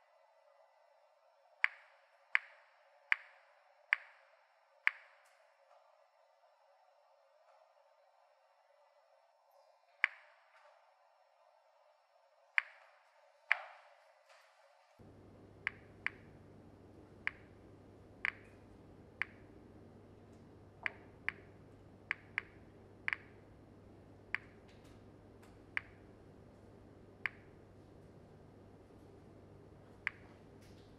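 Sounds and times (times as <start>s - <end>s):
geiger counter clicking: 1.6s - 5.2s, 15.0s - 27.8s, 30.0s - 30.9s
low steady hum: 15.0s - 30.9s.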